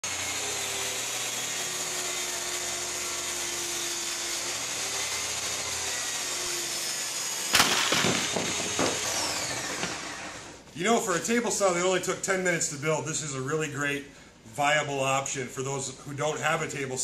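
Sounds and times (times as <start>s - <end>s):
circular saw cutting board: 0.0s - 10.6s
wooden knocks clattering: 7.6s - 10.1s.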